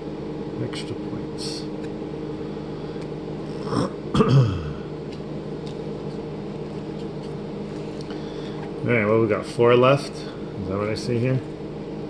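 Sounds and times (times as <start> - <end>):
steady low hum: 0.0 - 12.0
person clearing throat: 3.6 - 4.9.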